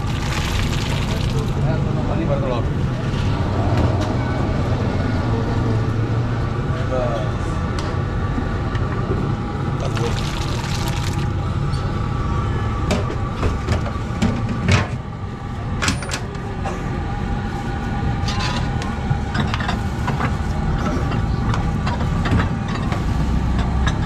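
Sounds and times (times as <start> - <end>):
street traffic rumble: 0.0 - 24.0.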